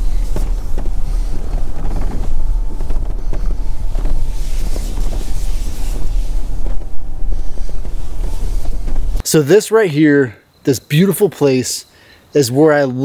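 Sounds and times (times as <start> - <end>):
knocks and rattles: 0.0 - 9.2
vehicle engine rumble: 0.0 - 9.2
wind buffeting microphone: 0.0 - 9.2.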